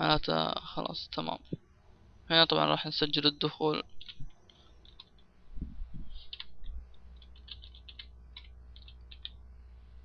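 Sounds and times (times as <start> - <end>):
soft low thumps: 5.5 - 6.9
keyboard key clicks: 7.2 - 9.4.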